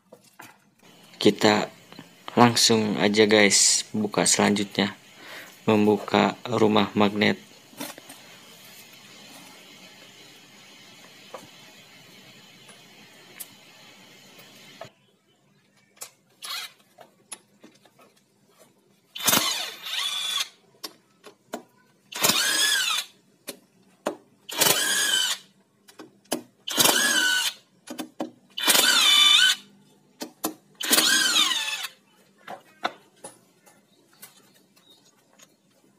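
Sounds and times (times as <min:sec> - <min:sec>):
power driver whining: 0:30.8 - 0:32.0.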